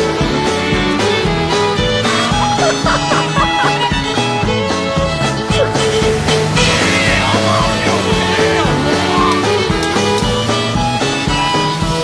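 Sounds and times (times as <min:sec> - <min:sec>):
instrumental band music: 0:00.0 - 0:12.0
steady drum beat: 0:00.0 - 0:12.0.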